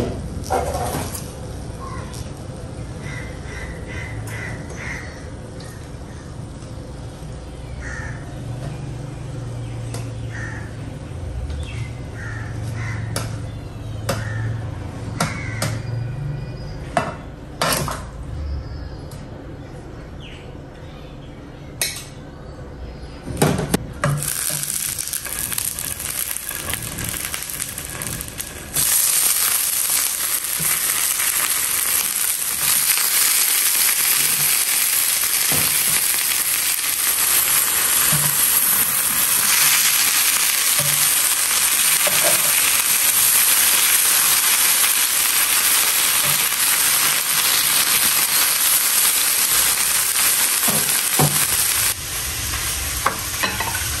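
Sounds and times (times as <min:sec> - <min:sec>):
fish frying sizzle: 0:24.1 - 0:54.0.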